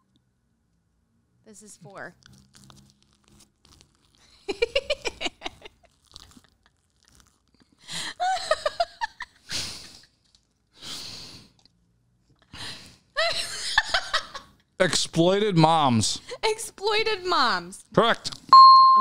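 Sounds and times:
puffs of breath: 10.8 - 11.6.

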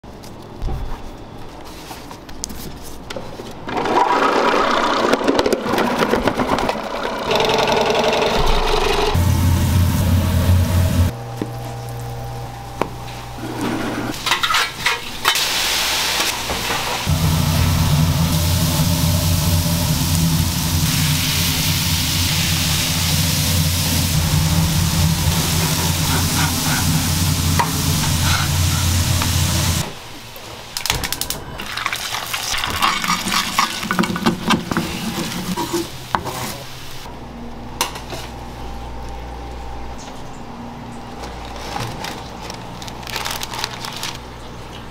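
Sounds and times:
low hum: 8.3 - 13.6, 17.1 - 30.0.

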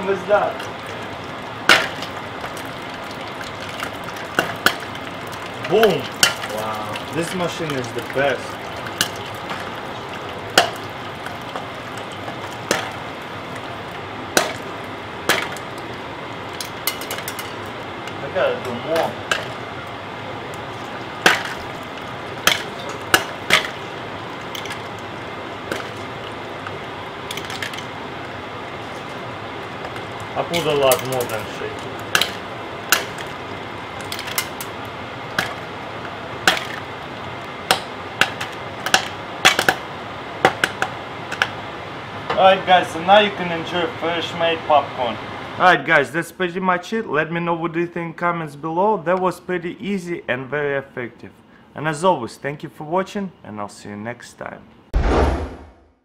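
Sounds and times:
popcorn kernels popping in oil: 0.0 - 41.7.

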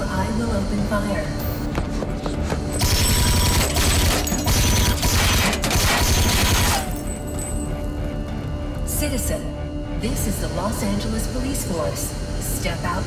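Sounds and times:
automatic gunfire: 2.8 - 6.8.

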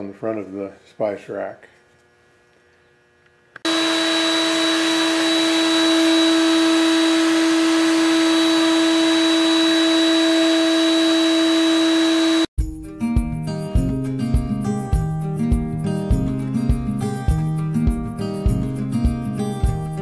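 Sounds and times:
router whining: 3.6 - 12.5.

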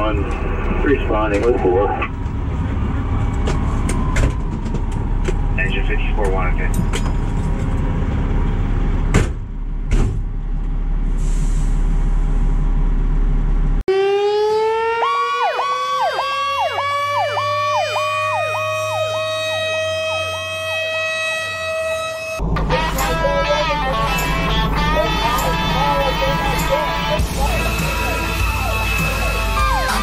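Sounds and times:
electronic siren sweeping: 13.9 - 30.0
fire truck engine idling: 22.4 - 30.0.

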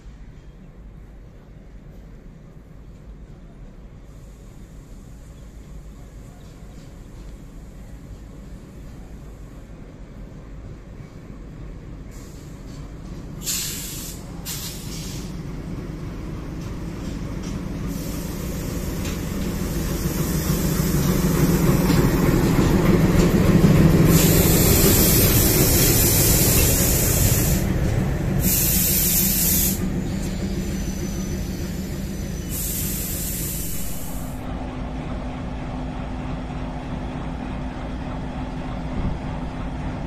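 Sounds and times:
train wheel and rail noise: 0.0 - 40.0
diesel locomotive engine idling: 3.3 - 40.0
loud hissing: 13.4 - 15.4, 24.1 - 27.7, 28.4 - 34.4.

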